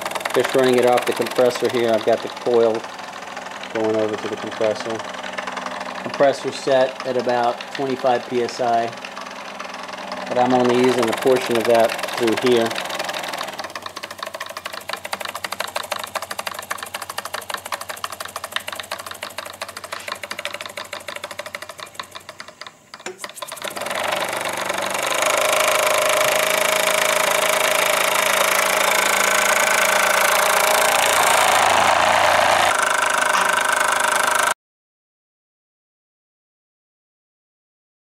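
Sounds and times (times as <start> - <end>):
model steam engine chuffing: 0.0 - 34.5.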